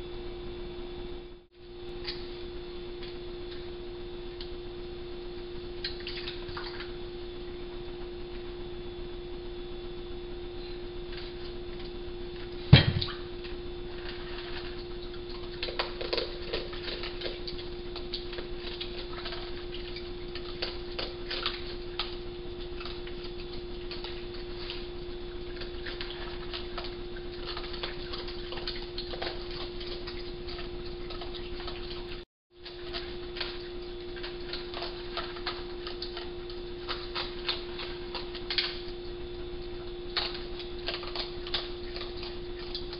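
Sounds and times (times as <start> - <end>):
steady hum: 0.0 - 42.9
crunching of kibble: 13.9 - 31.7, 39.8 - 42.9.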